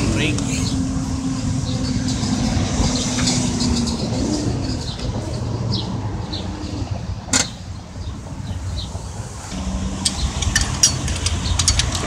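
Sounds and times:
low machinery rumble: 0:09.5 - 0:12.0.

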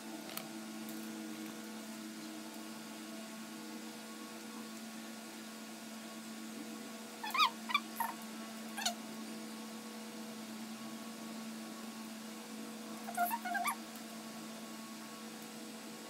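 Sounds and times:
dog whimpering: 0:07.2 - 0:08.2, 0:13.1 - 0:13.8.

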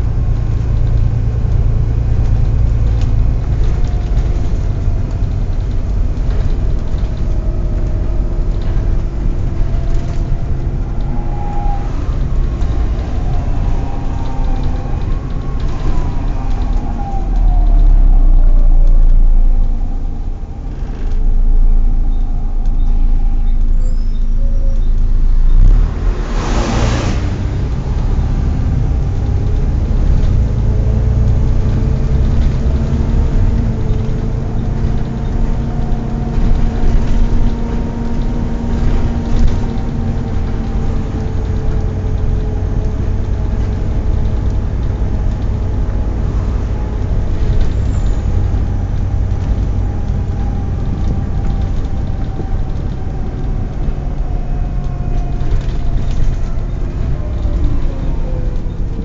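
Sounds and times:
bus diesel engine running: 0:00.0 - 0:59.0.

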